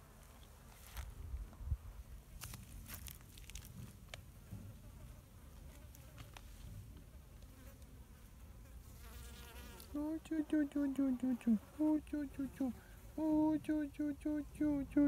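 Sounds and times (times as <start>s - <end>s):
wasp wings buzzing: 7.2s - 13.9s.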